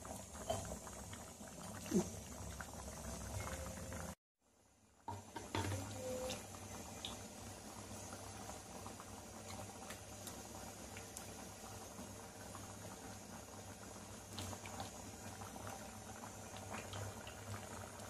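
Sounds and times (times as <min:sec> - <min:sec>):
lentil stew bubbling in a pan: 0:00.0 - 0:18.0.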